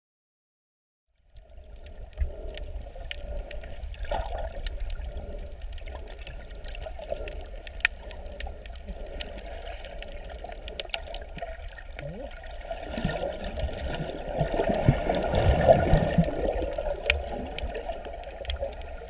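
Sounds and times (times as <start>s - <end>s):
sharp underwater clicks and crackles: 1.1s - 19.0s
muffled underwater rumble: 1.3s - 19.0s.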